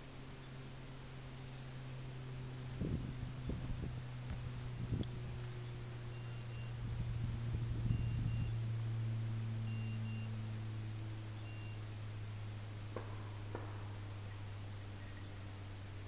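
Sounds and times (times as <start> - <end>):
steady low hum: 0.0 - 16.0
brush rustling: 2.4 - 7.8
beeper collar double beeps: 6.1 - 6.8, 7.8 - 8.6, 9.6 - 10.4, 11.4 - 11.8.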